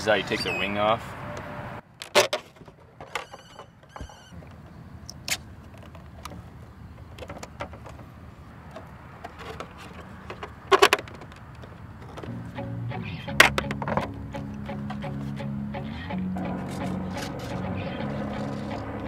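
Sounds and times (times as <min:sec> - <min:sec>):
plastic clicks and knocks: 0:07.0 - 0:08.1, 0:08.7 - 0:12.4, 0:13.4 - 0:15.0.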